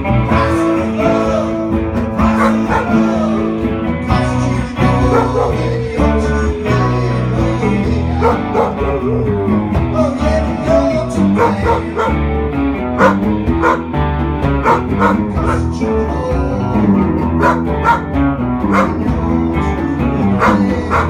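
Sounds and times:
guitar music: 0:00.0 - 0:21.0
dog howling: 0:02.2 - 0:03.3, 0:05.0 - 0:05.8, 0:08.1 - 0:08.9, 0:11.3 - 0:12.2, 0:13.0 - 0:13.8, 0:14.6 - 0:15.7, 0:17.4 - 0:18.0, 0:18.7 - 0:19.0, 0:20.3 - 0:21.0.

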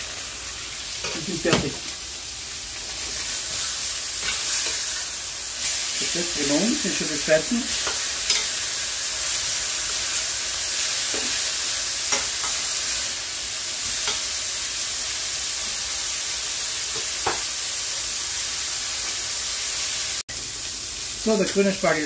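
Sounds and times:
meat sizzling in a frying pan: 0:00.0 - 0:22.0
metal tongs clicking on pan: 0:07.8 - 0:08.6.

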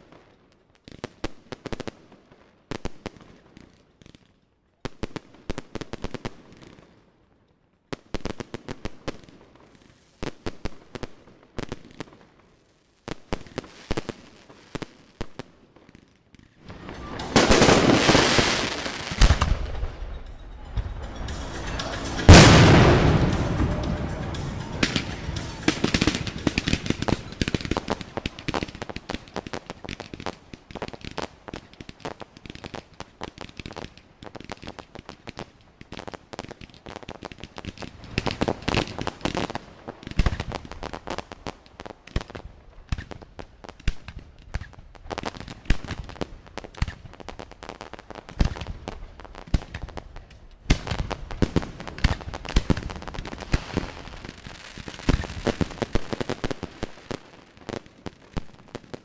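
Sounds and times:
fireworks crackling and popping: 0:00.0 - 0:07.0, 0:07.8 - 0:59.0
fireworks bangs: 0:16.6 - 0:34.0, 0:36.6 - 0:59.0.

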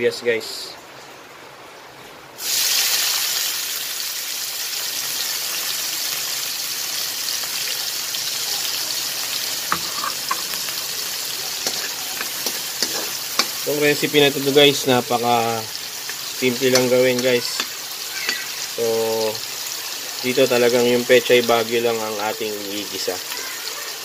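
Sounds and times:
onion sizzling in hot oil: 0:02.4 - 0:24.0
metal spatula scraping wok: 0:09.7 - 0:15.2, 0:15.9 - 0:18.6.

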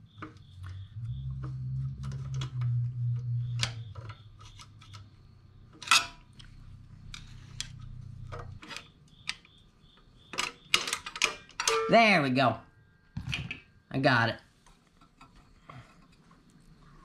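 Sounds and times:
steady low hum: 0:00.0 - 0:10.3
screwdriver clicking and scraping metal: 0:07.1 - 0:09.5.

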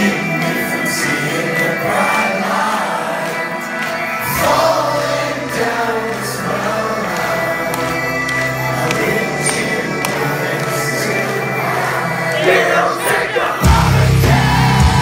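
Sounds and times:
electric guitars: 0:00.0 - 0:15.0
drums: 0:13.6 - 0:15.0.

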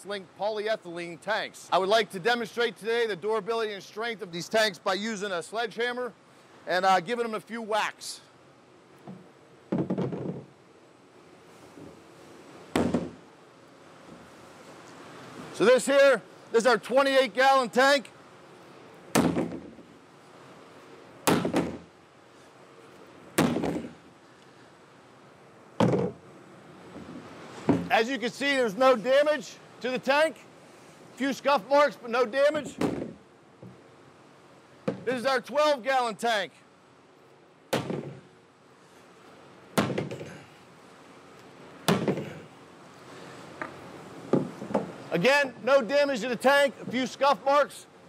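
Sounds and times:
sledgehammer striking plastic tank: 0:09.7 - 0:10.5, 0:12.8 - 0:13.2, 0:19.2 - 0:19.7, 0:21.3 - 0:21.8, 0:23.4 - 0:24.0, 0:25.8 - 0:26.2, 0:32.8 - 0:33.2, 0:37.7 - 0:38.2, 0:39.8 - 0:40.4, 0:41.9 - 0:42.4.

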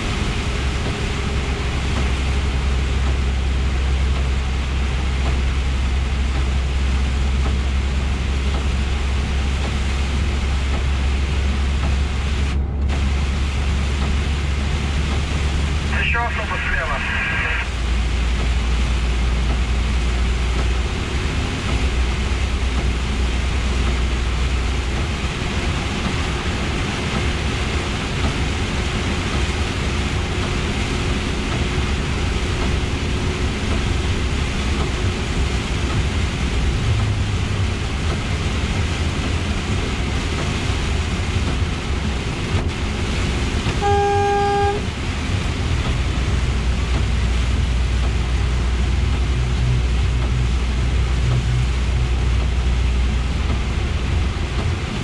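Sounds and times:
truck engine drone: 0:00.0 - 0:55.0
tyres hissing on wet road: 0:00.0 - 0:55.0
horn-like tone: 0:43.8 - 0:44.9.

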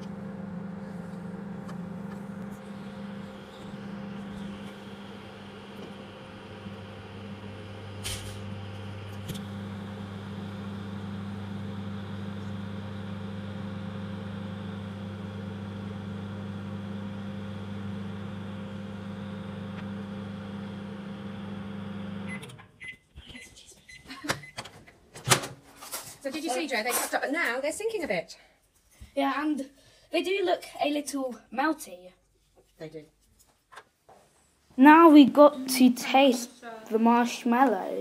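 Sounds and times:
microwave oven humming: 0:00.0 - 0:22.9.

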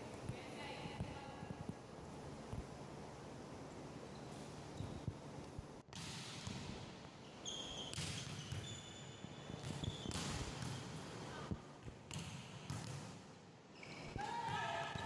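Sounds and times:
volleyball slaps echoing: 0:05.9 - 0:06.9, 0:09.6 - 0:11.2, 0:11.8 - 0:13.3
sneakers squeaking on court: 0:07.2 - 0:10.8.

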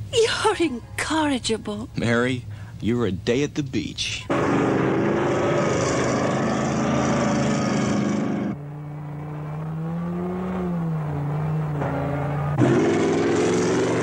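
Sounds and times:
steady low hum: 0:00.0 - 0:10.3
engine rumble with hiss: 0:02.0 - 0:04.6.

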